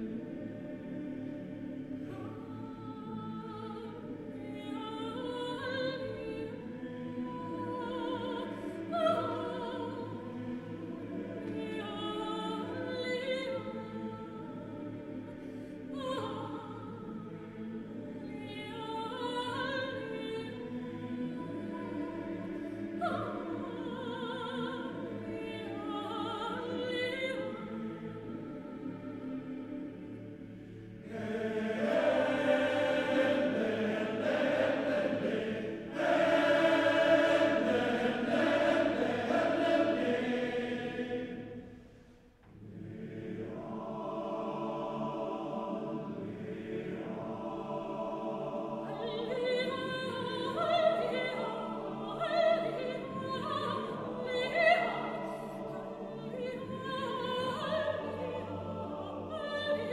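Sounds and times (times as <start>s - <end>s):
men's choir singing chords: 0.0s - 16.0s, 19.4s - 59.9s.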